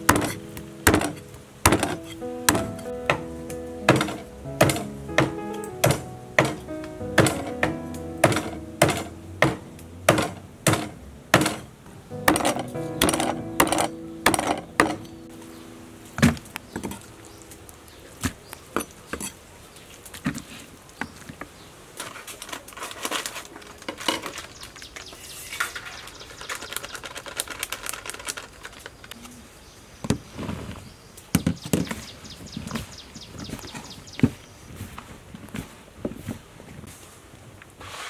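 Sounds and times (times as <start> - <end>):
bowls and utensils knocking: 0.1 - 3.3, 3.9 - 11.6, 12.2 - 15.1
plastic packet crinkling: 22.4 - 25.1, 25.8 - 29.2.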